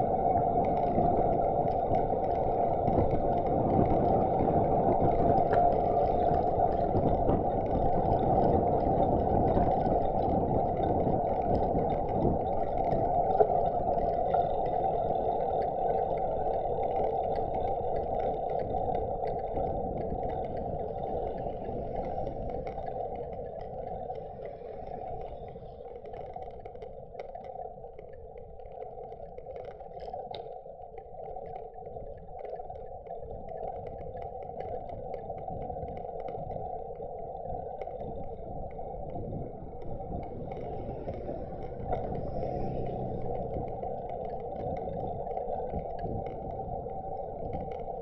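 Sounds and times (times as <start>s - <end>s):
bicycle road noise hum: 0.0s - 27.2s, 37.5s - 48.0s
faint ticks: 0.0s - 48.0s
cars passing: 40.4s - 44.6s.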